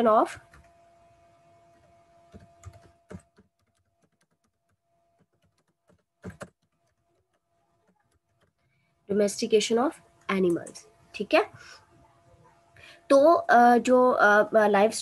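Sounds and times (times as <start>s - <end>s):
typing on computer keyboard: 1.8s - 8.7s.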